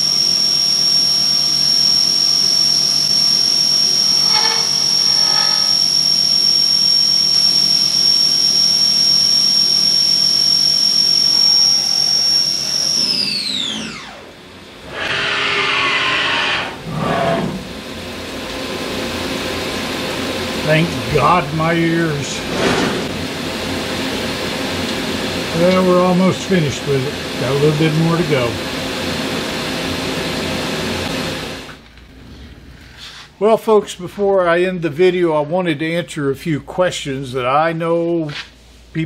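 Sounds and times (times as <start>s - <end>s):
milling machine high-pitched whine: 0.0s - 31.8s
brief rushes of noise: 22.4s - 23.2s.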